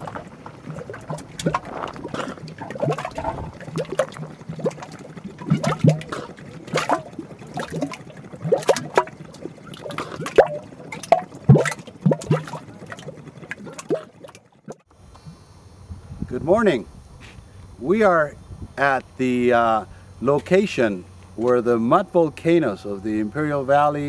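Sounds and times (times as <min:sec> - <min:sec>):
mud bubbling with plops and gurgles: 0:00.0 - 0:14.9.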